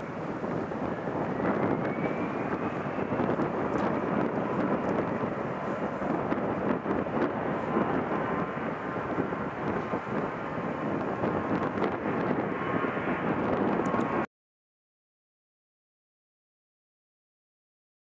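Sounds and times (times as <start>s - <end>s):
jet engines rumbling: 0.0s - 14.3s.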